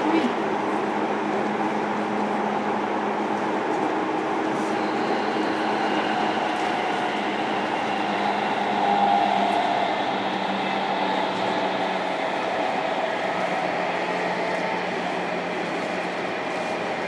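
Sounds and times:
train wheels rumbling on rail: 0:00.0 - 0:17.0
electric motor and inverter tones: 0:04.5 - 0:14.2.

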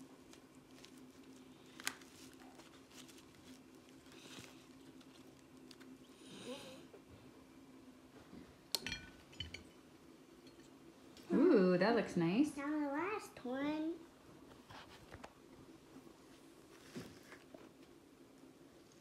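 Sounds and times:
rustling and crunching of nuts: 0:00.0 - 0:06.1
low steady hum: 0:00.0 - 0:19.0.

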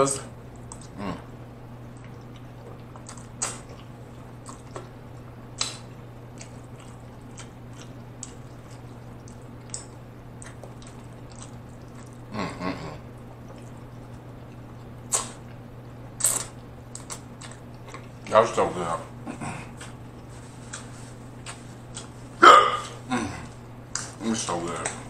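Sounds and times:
wet chewing: 0:00.5 - 0:12.3, 0:13.0 - 0:18.3
lip smacks: 0:01.9 - 0:12.3, 0:13.2 - 0:18.2.

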